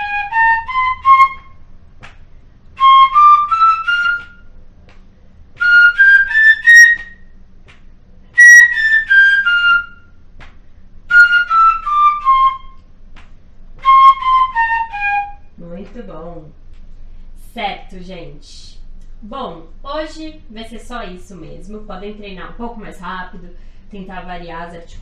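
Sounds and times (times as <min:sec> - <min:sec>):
fife playing scale: 0:05.6 - 0:07.2, 0:08.3 - 0:10.1.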